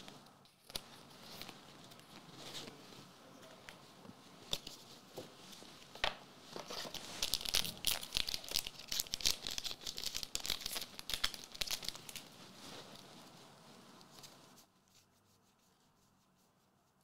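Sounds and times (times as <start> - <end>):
foil pack tearing and crinkling: 6.9 - 12.2.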